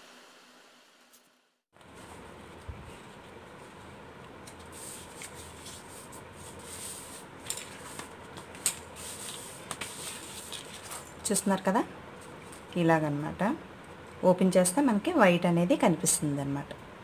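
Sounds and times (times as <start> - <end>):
paper rustling and sliding: 1.8 - 11.1.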